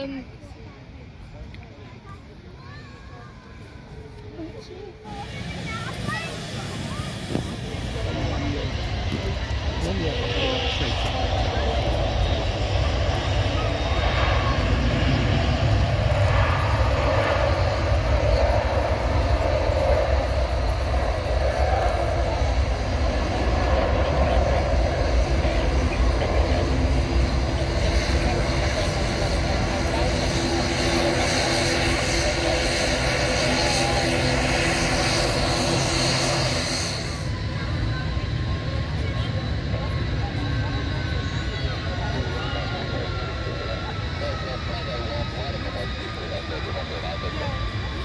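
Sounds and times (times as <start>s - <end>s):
distant jet engines rumbling: 0.0s - 48.0s
wind buffeting microphone: 5.2s - 38.6s
wind on microphone: 7.1s - 13.0s.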